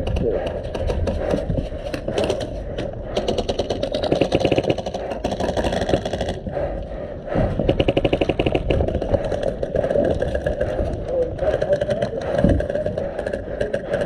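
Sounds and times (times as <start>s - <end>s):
airsoft rifle firing bursts: 3.2s - 6.4s, 7.6s - 10.9s.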